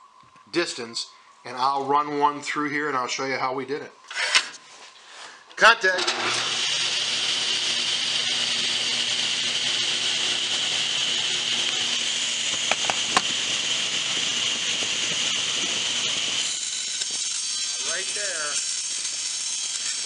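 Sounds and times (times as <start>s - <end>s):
table saw cutting wood: 6.0s - 20.0s.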